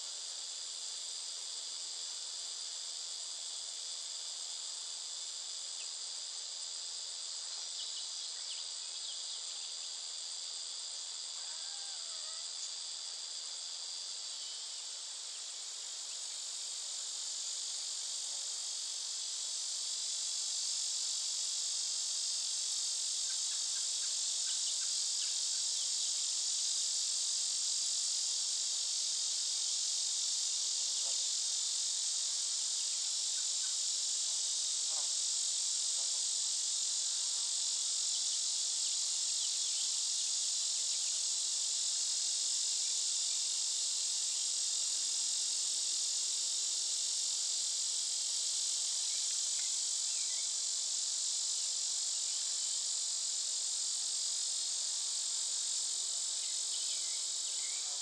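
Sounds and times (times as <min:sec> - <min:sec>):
insects trilling: 0:00.0 - 0:58.0.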